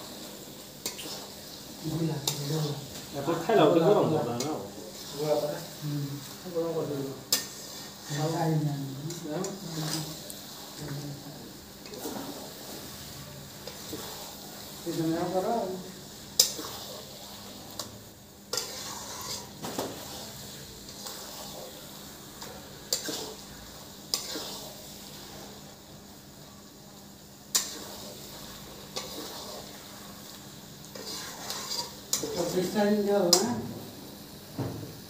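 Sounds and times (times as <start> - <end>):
frying sizzle: 0.0 - 35.0
metal spatula scraping pan: 0.8 - 5.7, 7.3 - 11.0, 16.3 - 17.9, 18.5 - 25.6, 27.5 - 29.9, 30.9 - 33.5.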